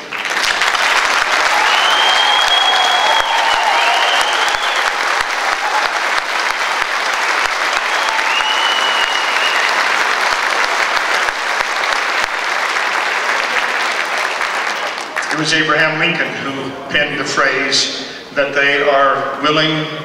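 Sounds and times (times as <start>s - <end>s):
audience applause: 0.0s - 15.8s.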